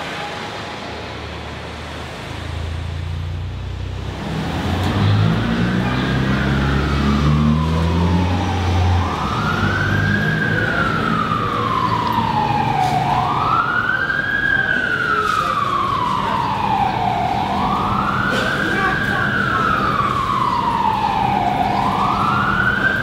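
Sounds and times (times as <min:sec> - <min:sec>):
siren wailing: 0:05.2 - 0:23.0.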